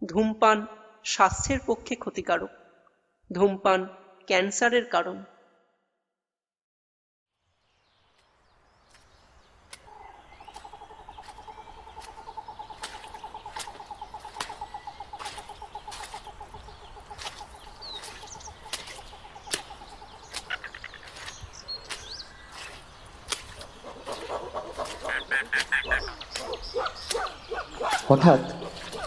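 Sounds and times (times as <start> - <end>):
high bird chirps: 9.8 - 29.0.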